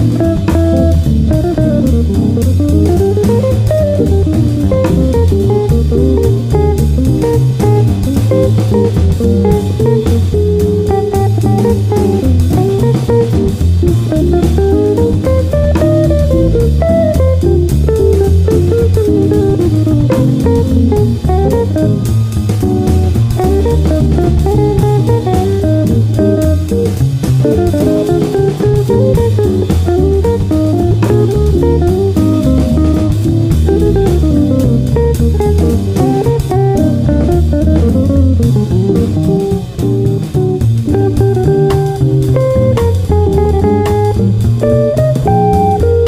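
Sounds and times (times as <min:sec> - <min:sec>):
instrumental music with bass line: 0:00.0 - 0:46.0.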